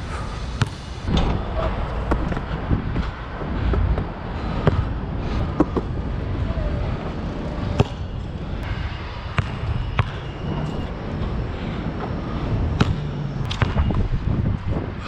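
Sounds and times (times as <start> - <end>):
low steady background rumble: 0.0 - 15.0
basketball bouncing: 0.6 - 3.1, 7.7 - 8.2, 9.3 - 10.8, 12.7 - 14.1.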